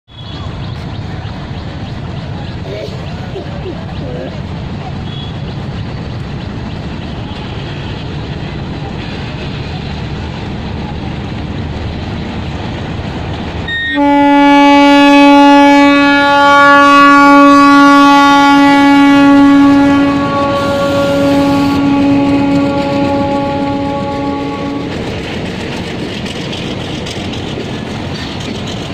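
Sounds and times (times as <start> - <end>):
locomotive rumbling on rails: 0.1 - 28.9
locomotive horn blast: 13.7 - 25.1.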